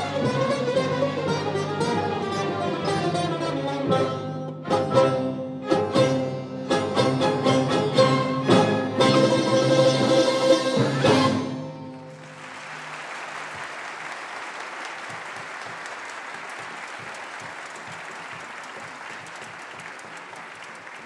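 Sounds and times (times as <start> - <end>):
audience applause: 11.9 - 21.0.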